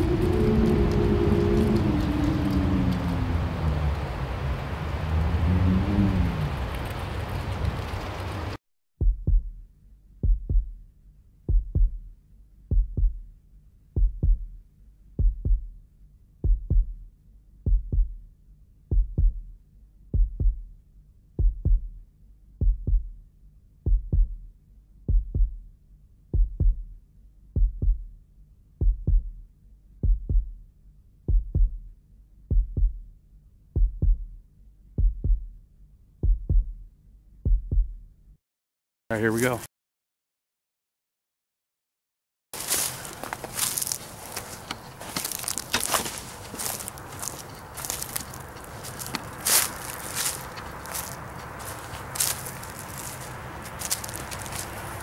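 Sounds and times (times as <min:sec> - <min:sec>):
heartbeat double thumps: 0:09.0 - 0:28.2, 0:28.8 - 0:35.6, 0:36.2 - 0:38.2.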